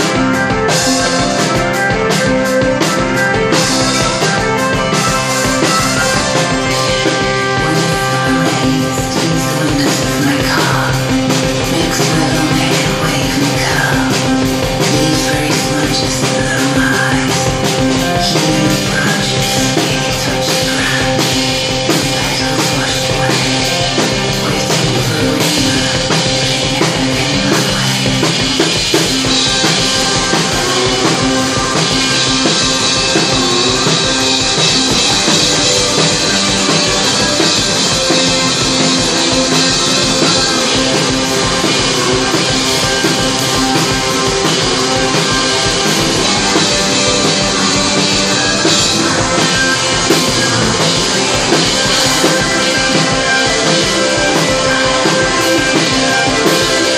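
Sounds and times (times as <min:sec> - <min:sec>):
drum kit beat: 0:00.0 - 0:56.9
electric guitar: 0:00.0 - 0:56.9.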